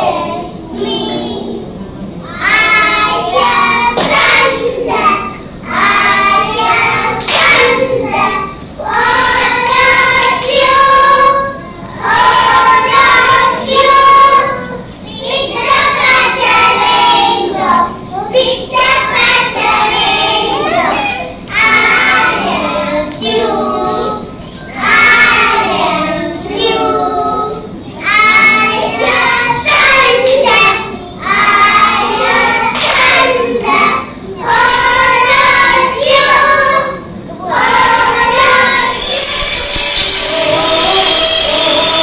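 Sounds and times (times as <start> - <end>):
children singing: 0.0 - 42.0.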